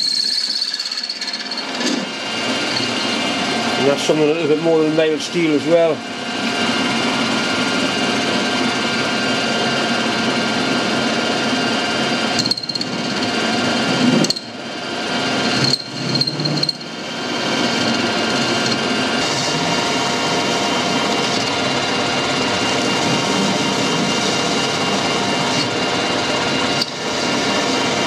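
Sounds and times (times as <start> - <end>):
lathe cutting steel: 0.0 - 5.9, 11.7 - 28.0.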